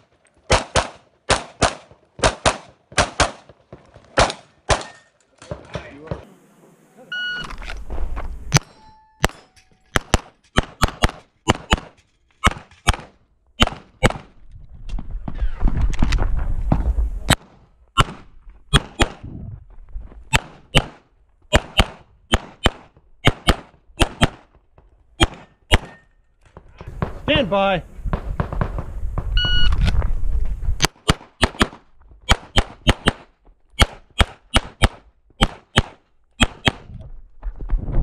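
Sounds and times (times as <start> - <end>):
pistol shots: 0.5 - 3.6, 4.2 - 5.0, 8.5 - 14.3, 17.3 - 19.2, 20.3 - 24.5, 25.2 - 26.0, 30.8 - 36.9
wind buffeting microphone: 19.1 - 20.0, 26.9 - 30.8.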